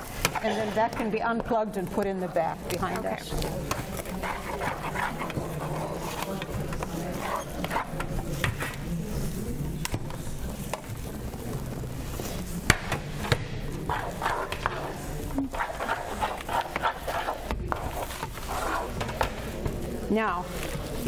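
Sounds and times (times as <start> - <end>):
faint voices: 0.0 - 21.0
spatula scraping in a skillet: 2.6 - 21.0.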